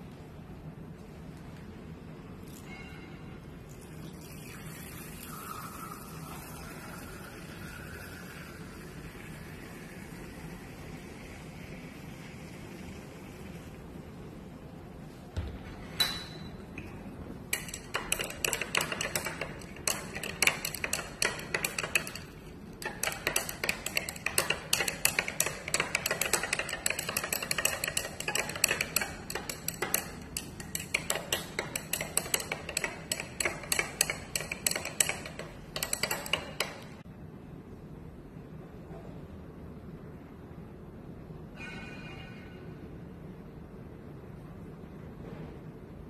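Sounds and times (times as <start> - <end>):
glass rod clinking in beaker: 16.0 - 37.0.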